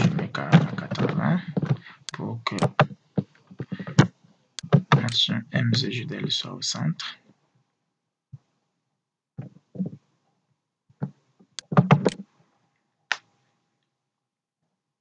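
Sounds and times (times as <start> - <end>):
computer mouse and keyboard clicks: 11.0 - 12.2.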